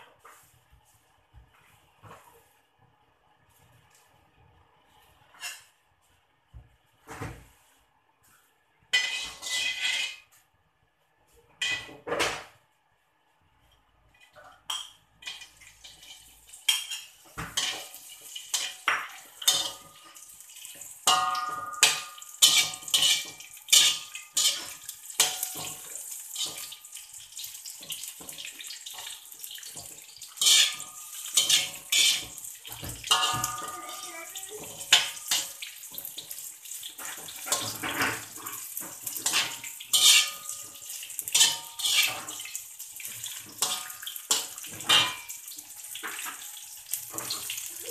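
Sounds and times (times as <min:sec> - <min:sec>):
metal spatula scraping a wok: 0:08.9 - 0:10.3, 0:15.2 - 0:20.1, 0:20.7 - 0:26.8, 0:28.9 - 0:47.9
fish sizzling in hot oil: 0:14.7 - 0:47.9.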